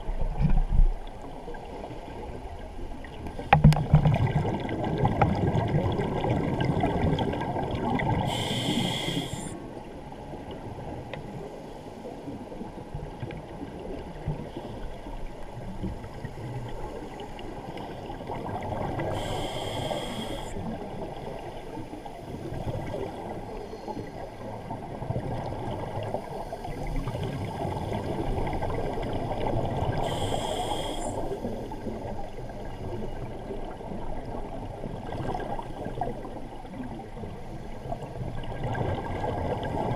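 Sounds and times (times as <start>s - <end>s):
underwater bubbling rumble: 0.0s - 11.5s, 12.2s - 39.9s
regulator hisses: 8.3s - 9.5s, 19.1s - 20.6s, 30.0s - 31.3s.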